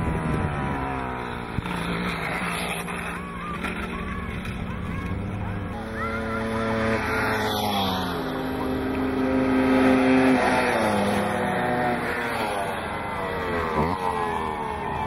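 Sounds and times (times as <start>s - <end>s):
moped engines buzzing: 0.0s - 15.0s.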